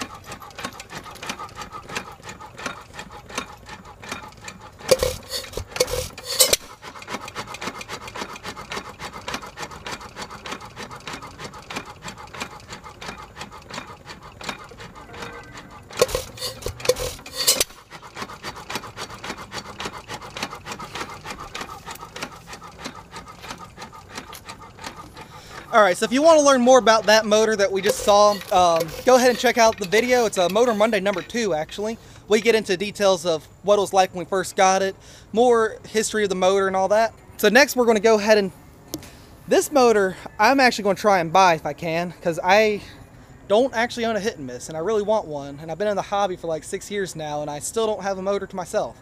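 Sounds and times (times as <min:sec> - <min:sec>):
engine clicking on flywheels: 0:00.0 - 0:49.0
engine firing strokes: 0:12.2 - 0:33.9.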